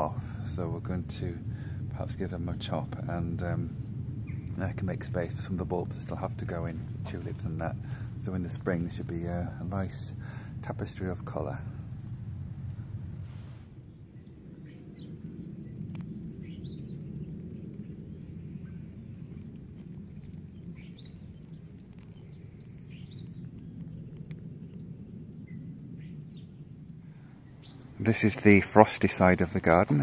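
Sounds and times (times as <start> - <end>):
footsteps rumble: 1.9 - 13.6, 18.8 - 24.2, 27.6 - 30.0
small bird chirping: 11.8 - 13.0, 13.9 - 28.1.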